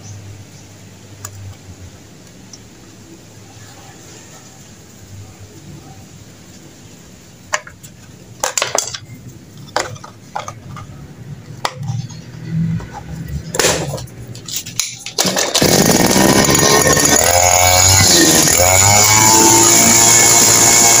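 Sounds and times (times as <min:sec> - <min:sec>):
two-stroke engine running: 0:15.2 - 0:21.0.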